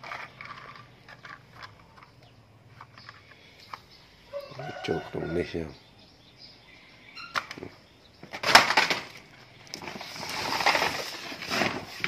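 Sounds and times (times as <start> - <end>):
plastic sack rustling: 8.3 - 12.0.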